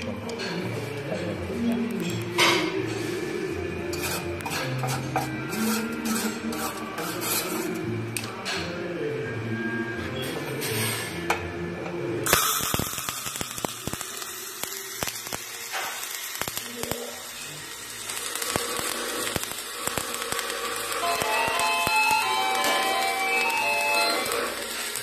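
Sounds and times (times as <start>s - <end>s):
welding arc hissing and crackling: 12.2s - 25.0s.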